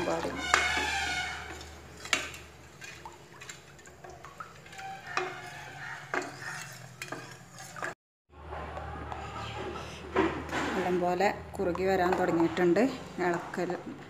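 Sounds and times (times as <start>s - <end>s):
spoon scraping a metal pot: 0.0s - 8.0s.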